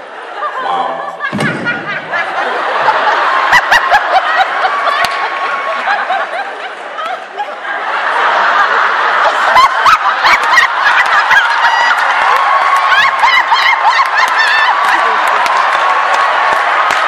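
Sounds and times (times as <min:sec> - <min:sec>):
large audience laughing: 0:00.0 - 0:17.0
scattered clapping: 0:04.8 - 0:05.4, 0:09.8 - 0:17.0.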